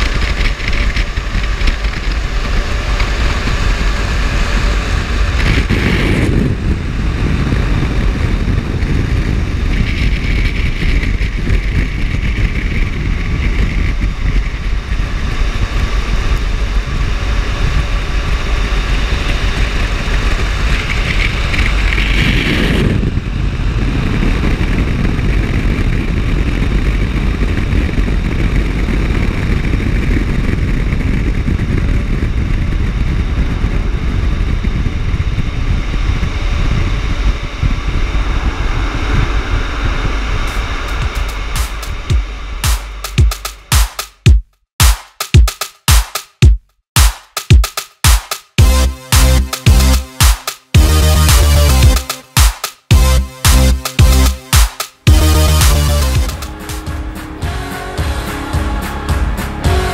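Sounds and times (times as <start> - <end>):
wind buffeting microphone: 0.0 - 42.6
dryer blowers rushing air: 0.0 - 45.0, 47.0 - 59.9.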